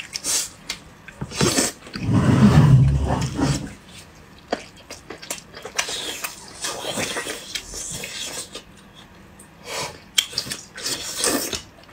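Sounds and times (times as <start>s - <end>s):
low rumble: 2.0s - 3.8s
chewing and lip smacking: 4.3s - 9.0s, 9.9s - 11.9s.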